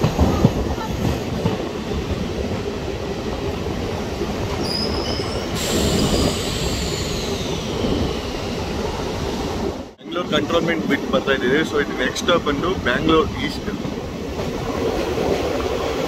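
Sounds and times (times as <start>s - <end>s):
train wheels rumbling on track: 0.0s - 16.0s
high wheel squeal: 4.6s - 8.8s.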